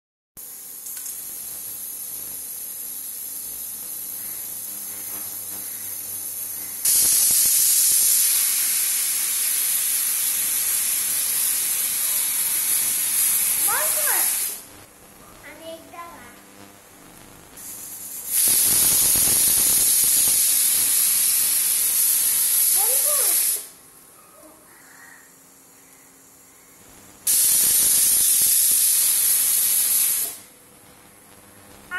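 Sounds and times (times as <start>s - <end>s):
pressure cooker steam hiss: 0.4s - 14.7s, 17.6s - 23.8s, 27.1s - 30.6s.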